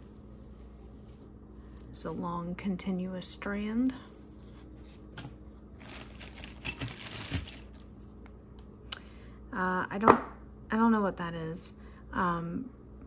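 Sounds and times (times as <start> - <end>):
jewelry beads clattering: 5.8 - 7.8.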